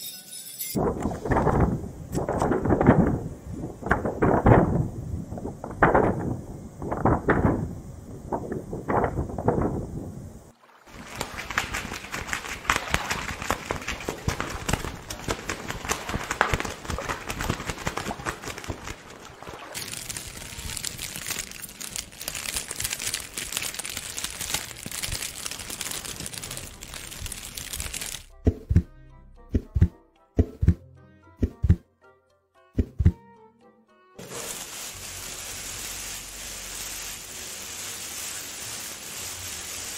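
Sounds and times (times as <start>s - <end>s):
dense crackling with small snaps: 11.0s - 28.3s
heartbeat thumps: 28.3s - 28.9s, 29.5s - 30.8s, 31.4s - 31.8s, 32.8s - 33.2s.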